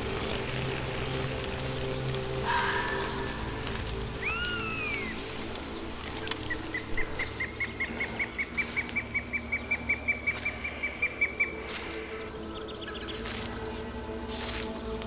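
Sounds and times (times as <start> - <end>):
bird whistling rapid notes: 4.2 - 5.2.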